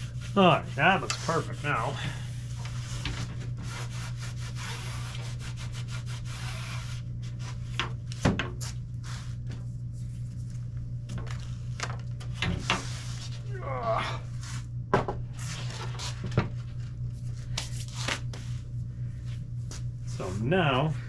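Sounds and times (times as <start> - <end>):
hand scrubbing fiberglass: 0.0 - 7.7.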